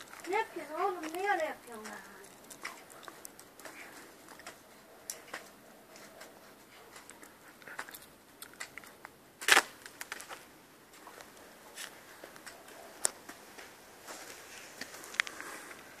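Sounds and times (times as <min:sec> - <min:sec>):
footsteps crunching on frosty ground: 0:09.5 - 0:15.8.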